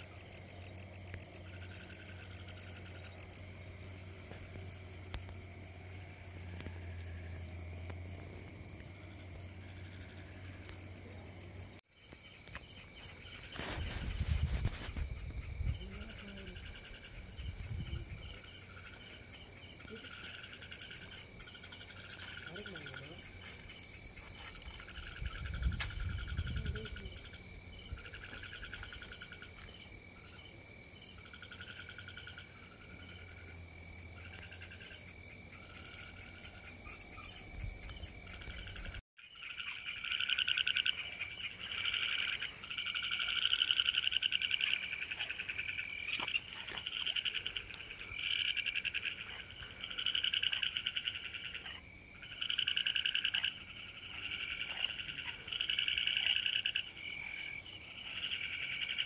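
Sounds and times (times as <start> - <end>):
crickets trilling: 0.0 - 59.0
frogs calling: 38.3 - 59.0.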